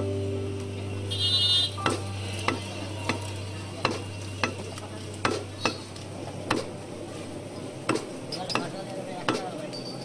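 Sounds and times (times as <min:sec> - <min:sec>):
cleaver chopping meat on wood: 0:01.8 - 0:04.6, 0:05.2 - 0:05.8, 0:06.5 - 0:06.7, 0:07.9 - 0:09.5.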